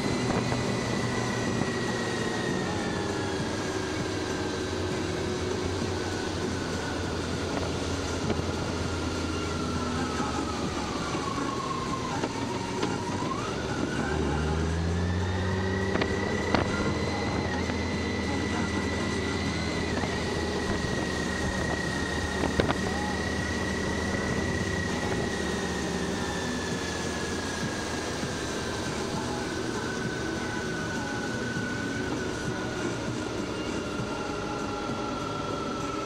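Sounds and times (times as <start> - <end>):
high whine: 0.0 - 36.0
motorcycle engine at speed: 0.0 - 36.0
wind noise: 19.6 - 25.4.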